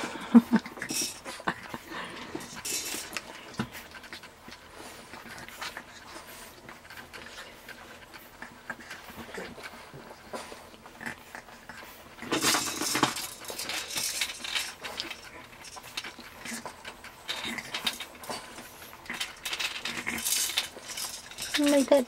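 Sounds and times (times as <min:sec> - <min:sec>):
plastic toy clicking and clattering: 0:12.2 - 0:22.0.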